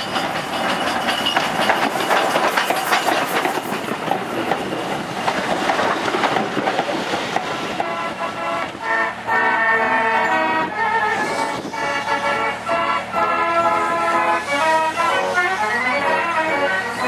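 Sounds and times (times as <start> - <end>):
train wheels rumbling on track: 0.0 - 17.0
music of held notes: 7.8 - 17.0.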